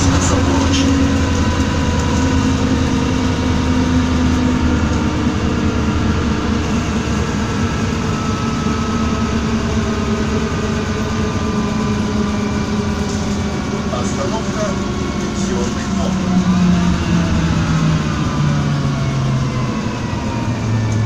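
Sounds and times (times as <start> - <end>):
road noise: 0.0 - 21.0
vehicle cabin hum: 0.0 - 21.0.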